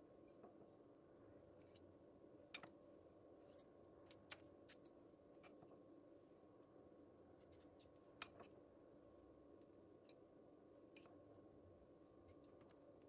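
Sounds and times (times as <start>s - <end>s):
faint room hum: 0.0s - 13.0s.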